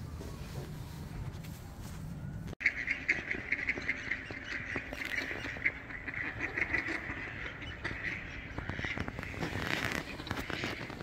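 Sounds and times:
ducks alarm calls: 2.6s - 11.0s.

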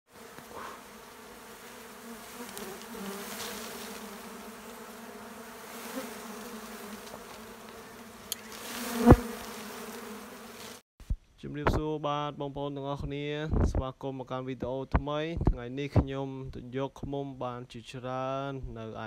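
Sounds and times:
bees buzzing: 0.1s - 10.8s.

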